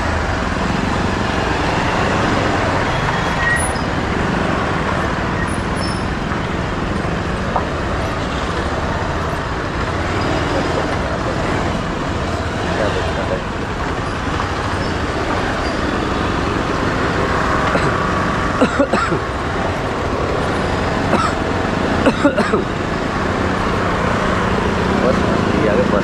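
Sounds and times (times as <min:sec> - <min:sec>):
hum of city traffic: 0:00.0 - 0:26.0.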